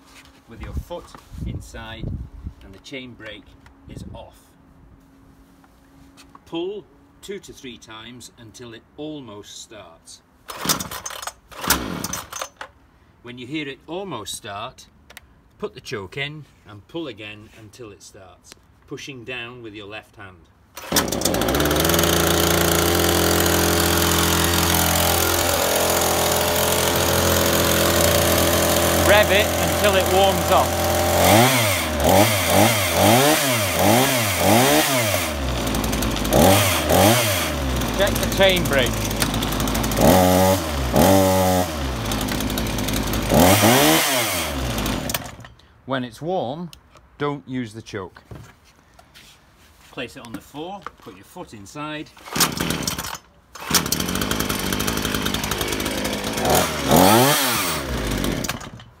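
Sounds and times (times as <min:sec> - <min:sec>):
chainsaw engine revving: 0:10.5 - 0:12.5, 0:20.8 - 0:45.5, 0:52.2 - 0:59.0
starter cord pull: 0:10.5 - 0:12.7, 0:20.8 - 0:33.5, 0:37.6 - 0:40.3, 0:52.2 - 0:59.0.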